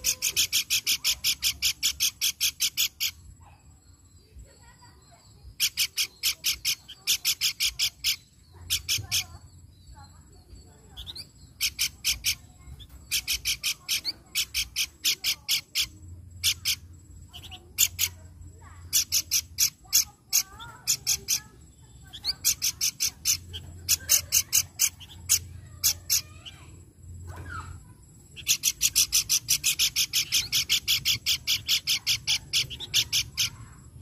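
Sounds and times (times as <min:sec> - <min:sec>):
bird singing repeated sharp notes: 0:00.0 - 0:04.1, 0:04.9 - 0:34.0.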